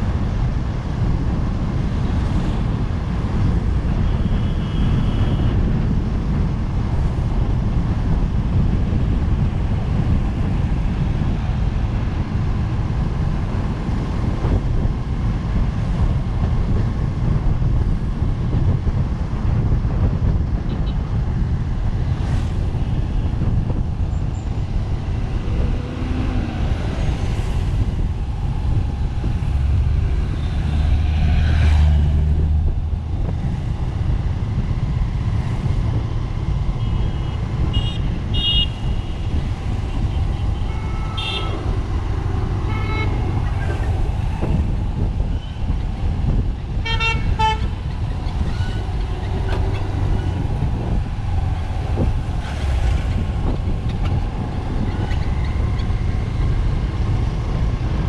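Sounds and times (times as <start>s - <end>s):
vehicle rumble and road noise: 0.0s - 58.0s
car horns honking: 36.8s - 39.0s, 40.1s - 41.8s, 42.6s - 43.4s, 46.8s - 47.8s.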